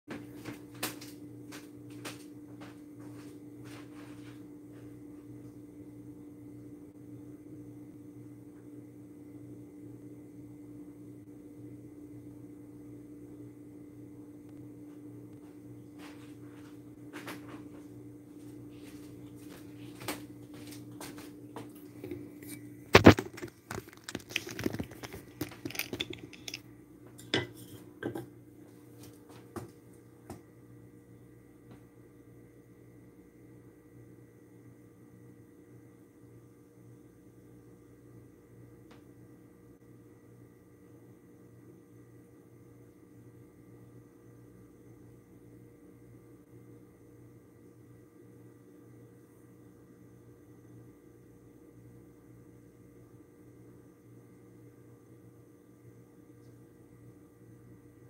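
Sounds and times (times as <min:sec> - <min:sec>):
footsteps walking away: 0:00.1 - 0:05.0, 0:14.9 - 0:22.3
low electrical hum: 0:00.1 - 0:58.0
clattering and rattling: 0:23.0 - 0:26.6.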